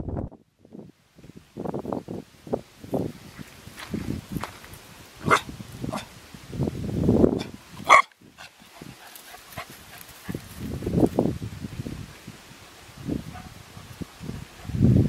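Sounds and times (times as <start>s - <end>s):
low rustling noise: 0.0s - 15.0s
puppy barking: 5.2s - 6.1s, 7.8s - 8.1s.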